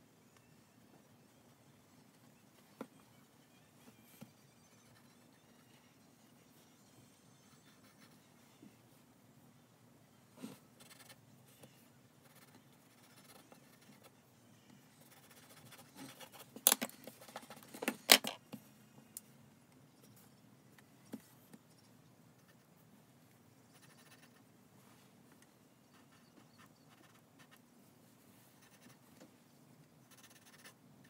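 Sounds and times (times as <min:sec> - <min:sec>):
pencil scratching on paper: 0:07.4 - 0:08.4, 0:12.2 - 0:14.1, 0:23.7 - 0:24.4, 0:26.0 - 0:27.6, 0:28.6 - 0:29.0, 0:30.1 - 0:30.8.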